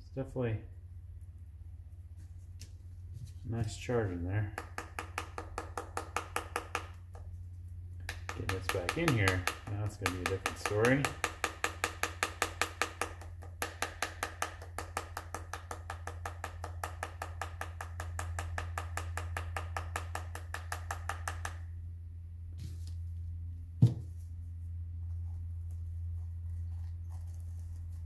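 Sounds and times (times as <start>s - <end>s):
low steady hum: 0.0s - 28.0s
tool scraping metal shell: 8.0s - 21.5s.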